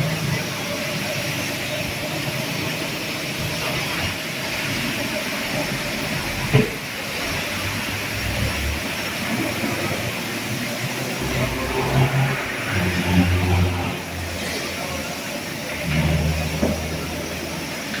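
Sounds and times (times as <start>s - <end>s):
street traffic hiss: 0.0s - 18.0s
low engine rumble passing: 10.9s - 14.8s.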